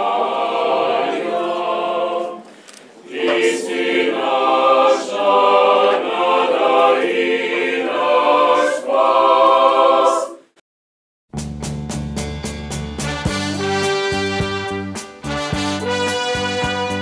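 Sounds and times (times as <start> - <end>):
choir singing: 0.0 - 10.6
brass music: 3.1 - 5.3, 12.9 - 17.0.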